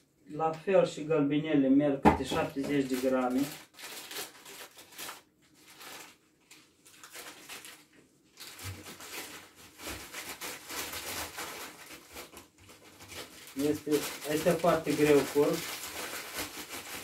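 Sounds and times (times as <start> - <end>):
paper bag rustling: 2.2 - 17.0
dried flowers pouring into jar: 13.5 - 16.0.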